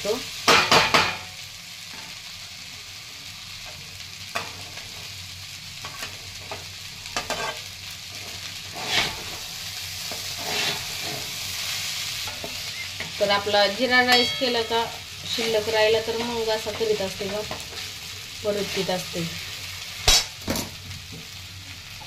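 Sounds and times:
low sizzle: 0.0 - 22.0
metal spatula scraping pan: 7.2 - 7.7, 8.7 - 9.4, 10.1 - 11.3.

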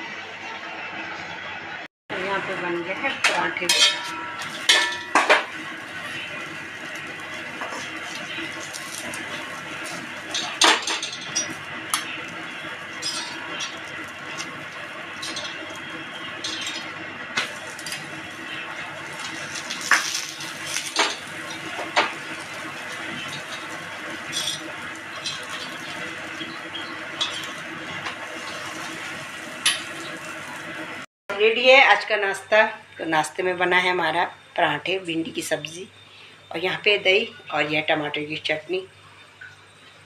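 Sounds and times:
spoon scraping iron griddle: 3.6 - 16.9, 18.8 - 30.2.

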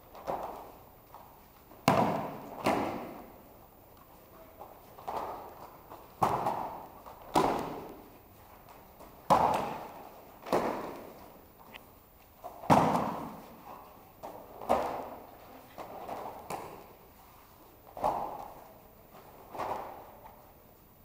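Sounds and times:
bodies landing on foam mats: 1.8 - 3.4, 4.6 - 8.1, 8.7 - 11.3, 12.4 - 13.6, 14.2 - 17.0.

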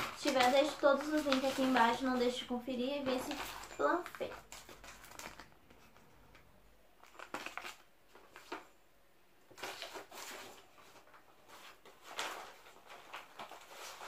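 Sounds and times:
paper and plastic rustling: 0.0 - 6.4, 7.0 - 8.8, 9.5 - 14.0.

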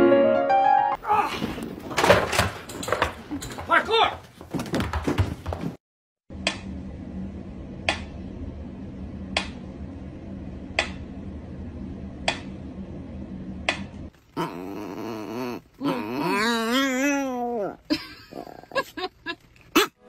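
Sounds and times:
low steady hum: 6.3 - 19.7.

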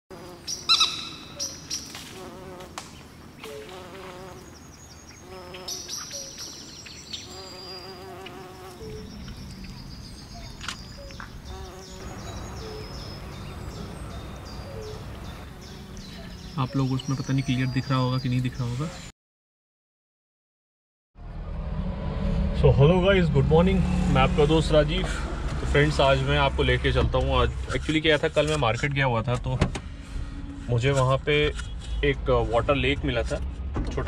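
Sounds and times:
insects buzzing: 0.1 - 17.6
small birds chirping: 0.1 - 19.1.

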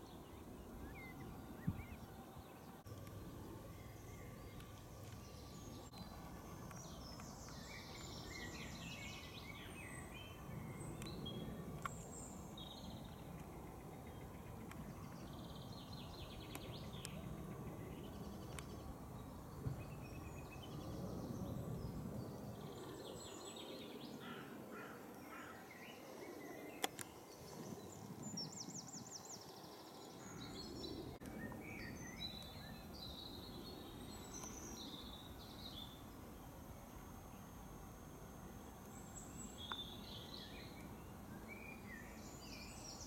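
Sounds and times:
birds singing and chirping: 25.2 - 43.0.

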